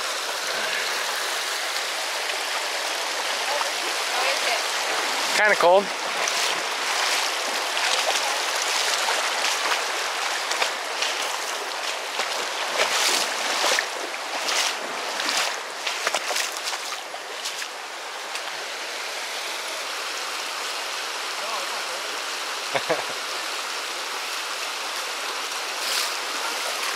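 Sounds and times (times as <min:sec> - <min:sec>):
creek water rushing: 0:00.0 - 0:26.9
splashes in water: 0:03.4 - 0:17.8.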